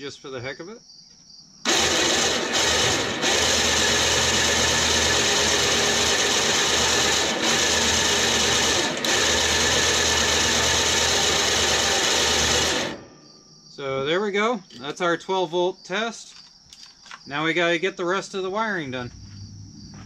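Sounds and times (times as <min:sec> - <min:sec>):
electric motor and gear whir: 0:01.7 - 0:13.0.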